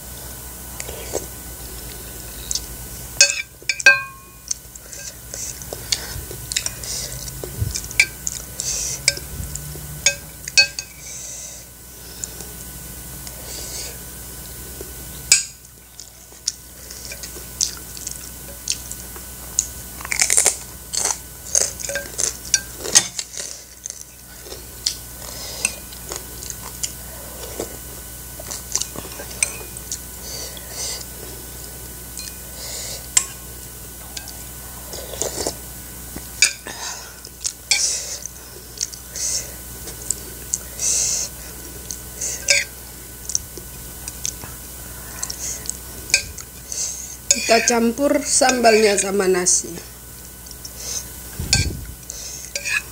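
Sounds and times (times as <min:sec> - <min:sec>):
metal spoon clinking on bowl: 0:03.2 - 0:04.4, 0:10.1 - 0:11.0, 0:42.5 - 0:42.7
chewing: 0:04.4 - 0:10.8, 0:15.6 - 0:33.4, 0:34.0 - 0:47.7, 0:50.1 - 0:52.9
crunching a fried chip: 0:19.6 - 0:24.0.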